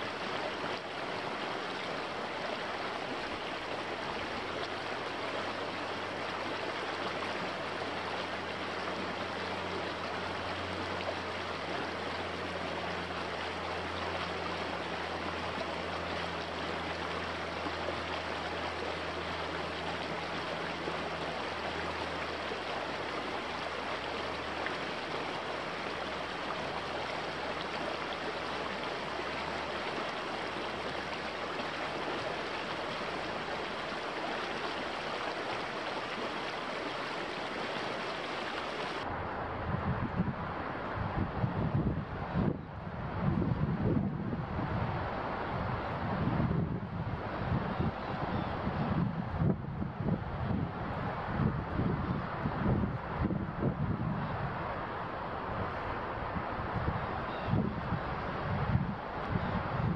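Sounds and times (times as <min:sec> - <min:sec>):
creek rushing over rocks: 0:00.0 - 0:39.4.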